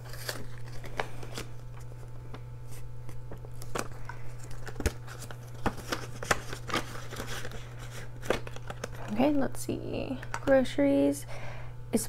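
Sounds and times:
banknotes rustling and crinkling: 0.0s - 9.4s
steady low hum: 0.0s - 12.0s.

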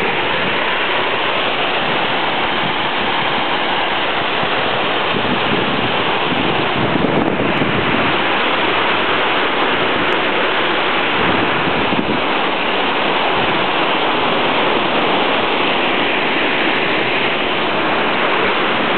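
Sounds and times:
waterfall rushing: 0.0s - 18.9s.

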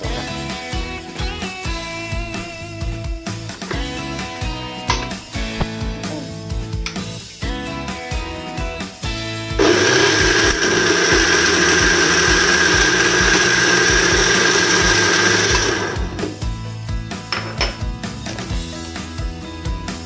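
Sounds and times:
electric blender running: 9.6s - 16.4s.

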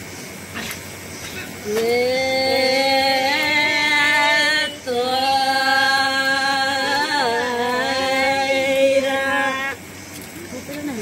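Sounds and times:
person singing chant-like held notes: 1.6s - 9.9s.

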